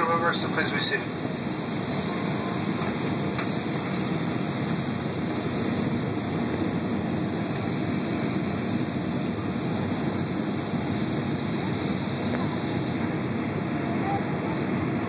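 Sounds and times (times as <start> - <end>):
jet airliner cabin noise: 0.0 - 15.0.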